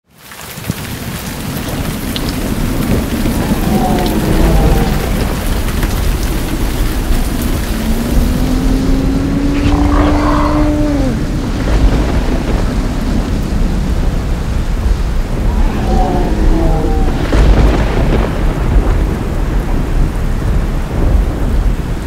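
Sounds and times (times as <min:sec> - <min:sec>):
heavy rain falling: 0:00.0 - 0:22.0
deep rolling thunder: 0:00.8 - 0:22.0
faint low rising drone: 0:03.3 - 0:11.8, 0:15.1 - 0:18.2.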